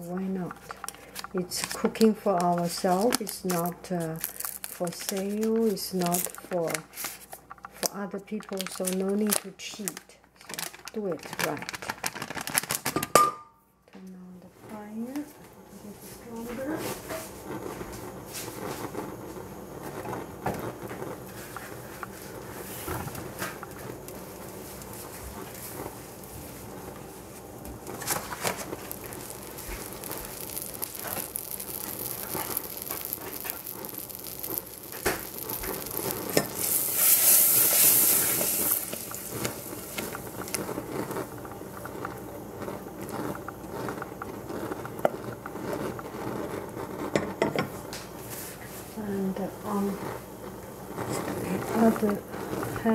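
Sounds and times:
butter sizzling in a saucepan: 0.0s - 10.0s, 16.0s - 52.9s
loud hiss: 27.2s - 40.9s.

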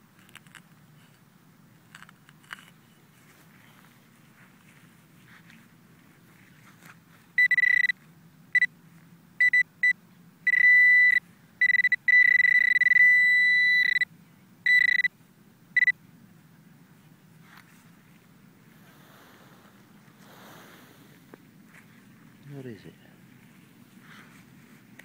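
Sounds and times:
metal detector probe beeping: 7.4s - 8.0s, 9.4s - 15.1s, 15.8s - 16.0s.

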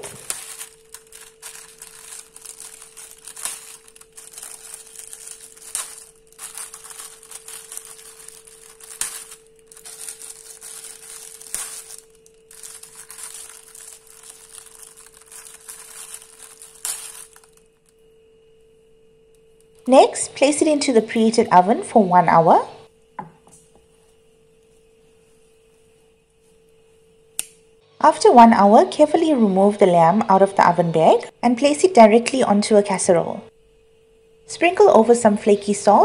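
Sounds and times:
plastic bag crinkling: 0.0s - 17.9s
faint steady hum: 0.0s - 36.0s.

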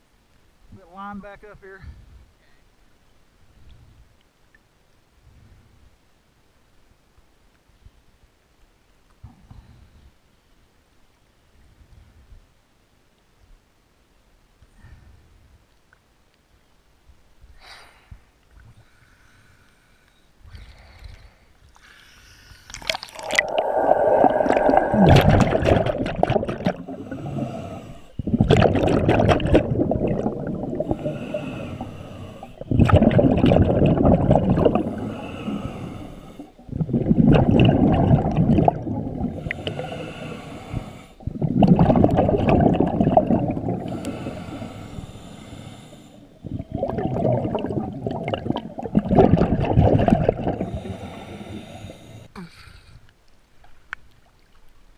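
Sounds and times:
diver inhaling through regulator: 18.8s - 25.9s, 26.5s - 28.4s, 29.8s - 48.3s, 50.2s - 53.0s
rush of bubbles underwater: 22.7s - 44.6s, 46.4s - 51.2s.

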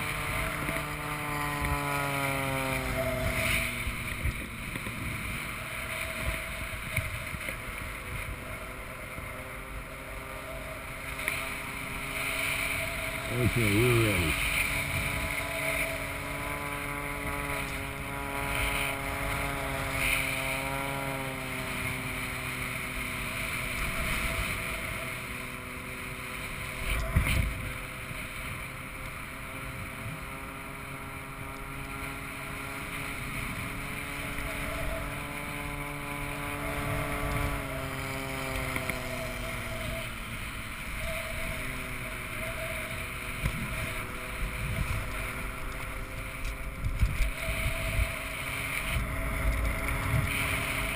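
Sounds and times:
propeller plane engine drone: 0.0s - 50.9s
wind on microphone: 32.1s - 50.9s.

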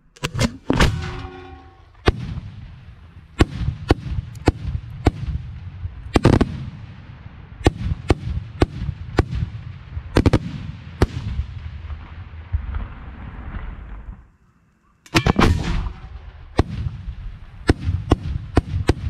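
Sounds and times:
firework shells banging: 15.0s - 16.2s.

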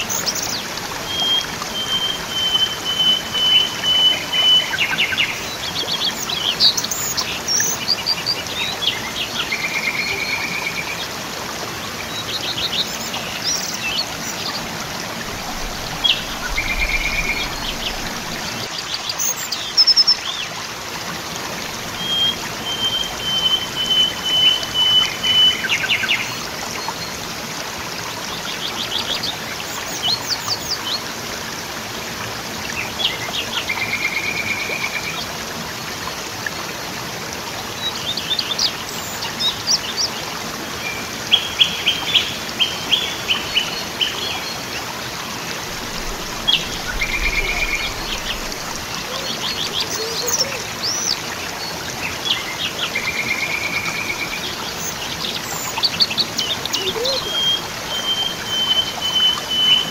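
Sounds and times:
waterfall rushing: 0.0s - 59.9s
birds chirping: 12.0s - 20.4s, 45.4s - 59.9s.

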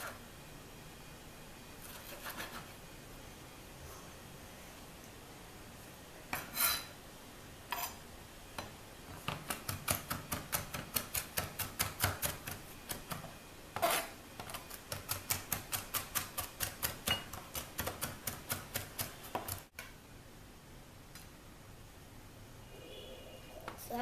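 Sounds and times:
knife chopping on cutting board: 9.2s - 19.6s.

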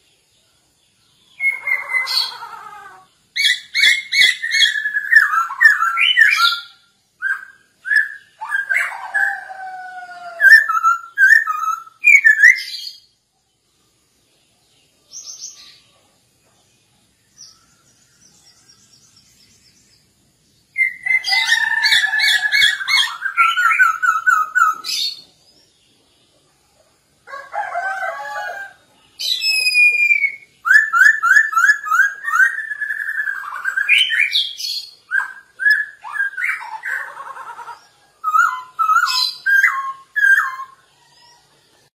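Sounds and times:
faint bird twitter: 0.0s - 27.1s
bird singing whistled notes: 1.0s - 2.1s, 3.3s - 9.2s, 10.4s - 13.2s, 17.2s - 25.4s, 29.0s - 37.1s, 38.2s - 41.4s.

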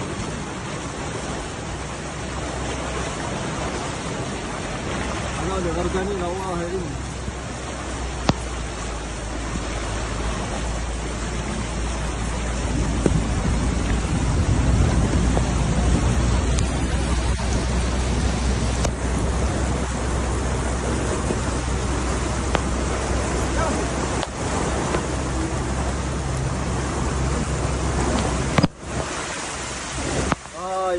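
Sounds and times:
floodwater splashing around car: 0.0s - 30.9s.

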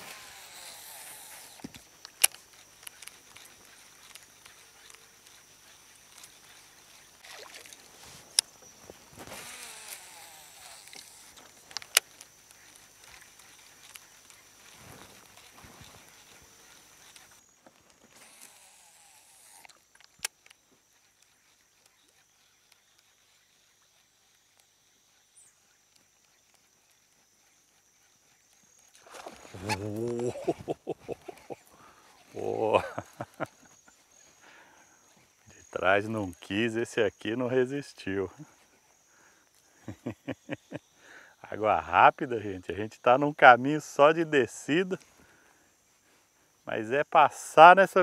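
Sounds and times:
sharp clicks: 0.0s - 6.5s, 9.3s - 17.4s
faint ticks: 0.0s - 48.0s
riverside ambience: 0.0s - 48.0s.

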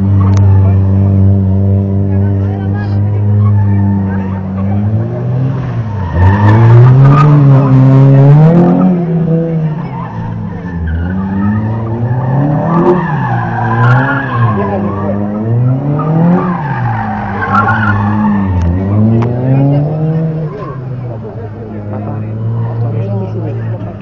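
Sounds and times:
car engine revving: 0.0s - 24.0s
tyres squealing: 5.6s - 21.1s.

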